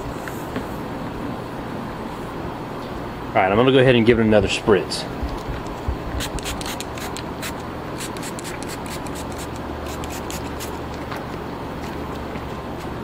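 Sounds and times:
trigger spray bottle spritzing: 6.2s - 10.8s.

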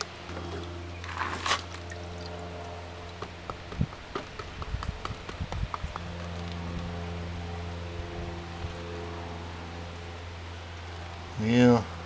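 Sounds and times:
steady low hum: 0.0s - 12.0s
water sloshing: 0.4s - 3.4s.

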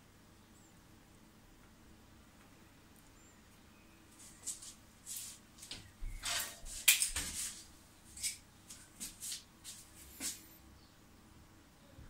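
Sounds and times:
wires rustling and scraping: 4.1s - 10.6s.

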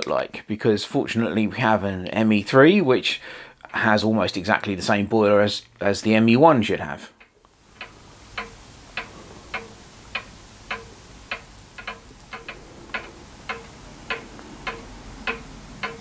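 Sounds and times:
mechanical ticking: 7.2s - 16.0s.

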